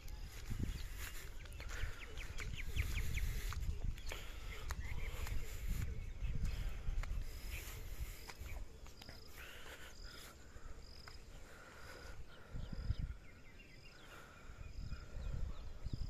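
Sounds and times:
faint chirping: 0.0s - 16.0s.

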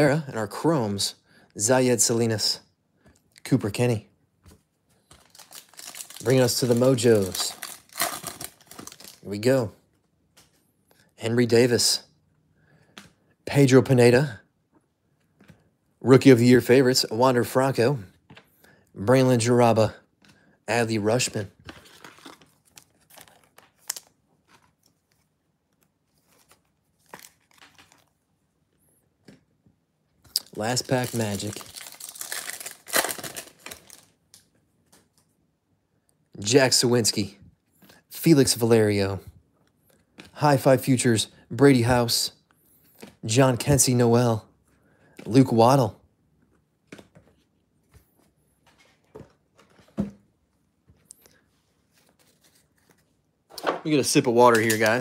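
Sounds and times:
trading cards rustling: 4.9s - 9.3s, 21.0s - 28.2s, 30.4s - 34.2s, 51.1s - 53.2s, 54.0s - 55.0s
foil wrapper crackling: 5.2s - 9.3s, 30.5s - 34.1s.

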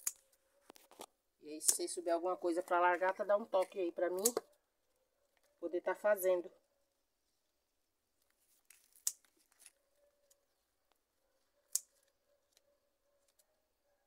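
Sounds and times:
scissors snipping stems: 0.0s - 0.3s, 1.6s - 2.0s, 3.0s - 4.5s, 8.6s - 9.7s, 11.6s - 12.1s.

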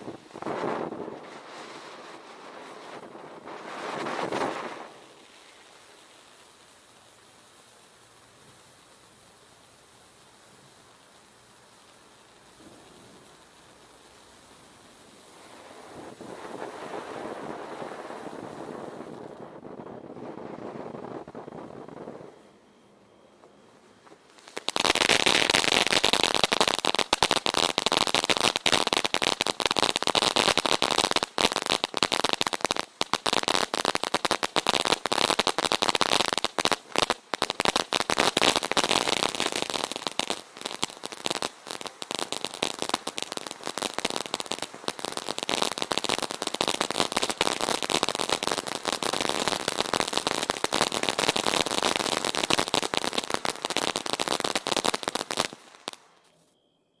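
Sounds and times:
firework fountain crackling: 0.0s - 56.4s.

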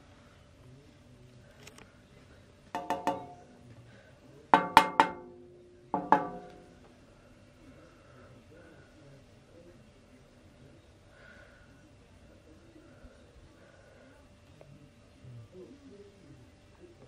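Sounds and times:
finger flicks on metal fan blades: 6.0s - 6.7s.

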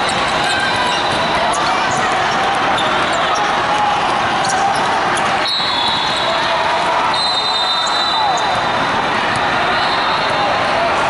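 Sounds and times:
din of many voices: 0.0s - 11.0s
sneaker squeak: 0.1s - 3.6s.

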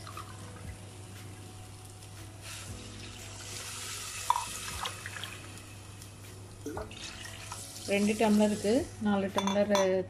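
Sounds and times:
water pouring into metal cup: 0.0s - 0.8s, 2.4s - 8.7s.

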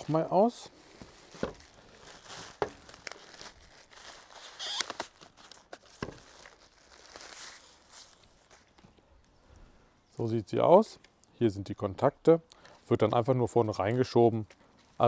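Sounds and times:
plastic wrapping rustling: 0.0s - 9.4s.

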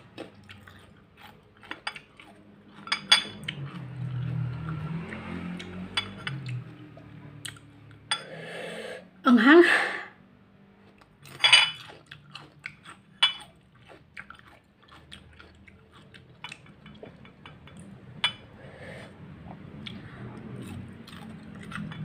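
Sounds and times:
crisp biting and chewing: 10.8s - 16.6s.

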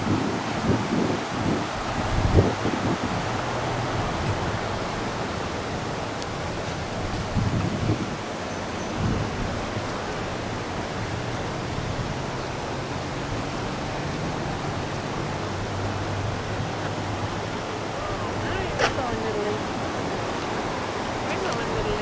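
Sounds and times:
creek rushing over stones: 0.0s - 22.0s.

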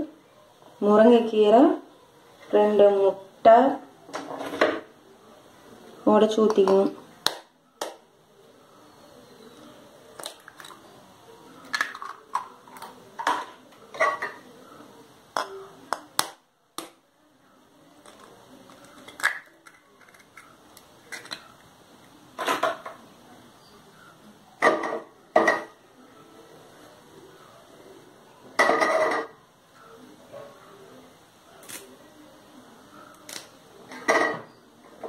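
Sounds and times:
spoon cracking eggs: 10.2s - 10.9s, 11.6s - 13.0s, 18.0s - 21.7s.

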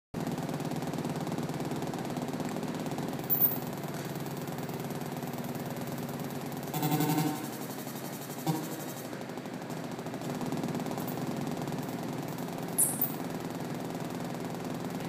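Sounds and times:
rapid electronic buzzing pulse: 6.6s - 9.1s
low electronic drone: 6.7s - 7.6s.

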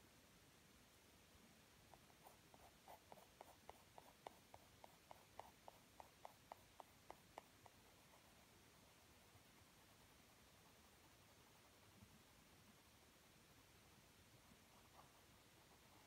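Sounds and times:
pencil shading on paper: 1.9s - 13.0s.

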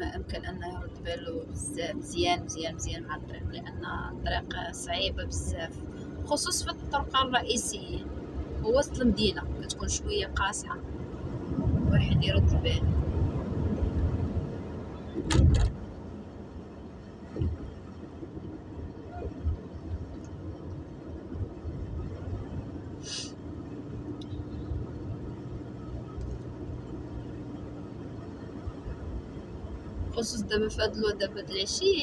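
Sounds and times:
car engine and road rumble: 0.0s - 32.0s.

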